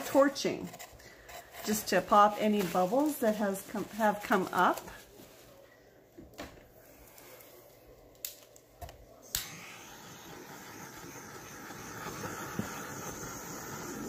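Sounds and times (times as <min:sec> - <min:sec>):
torch igniter clicks: 0:08.1 - 0:14.0
hissing torch flame: 0:09.2 - 0:14.0.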